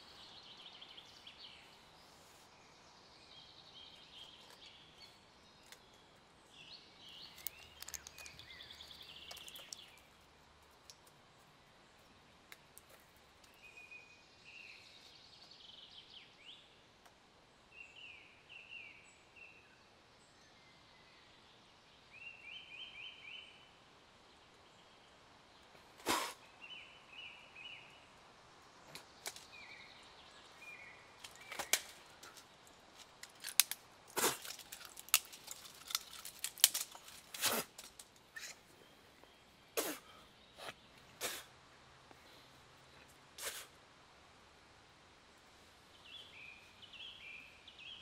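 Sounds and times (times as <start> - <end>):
clicks and snaps from handling: 7.2 - 10.0, 33.0 - 38.1.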